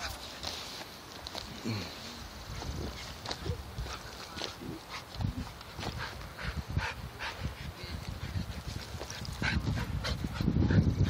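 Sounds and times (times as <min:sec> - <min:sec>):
scuffling in wood chips: 0:00.0 - 0:06.0.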